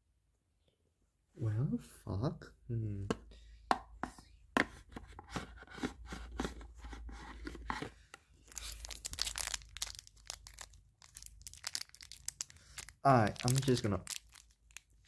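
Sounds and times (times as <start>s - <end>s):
plastic packaging crinkling: 8.4s - 15.0s.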